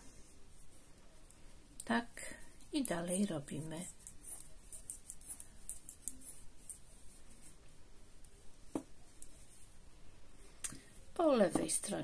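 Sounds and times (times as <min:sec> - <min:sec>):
knitting needles clicking: 0:02.6 - 0:03.2, 0:03.9 - 0:06.9.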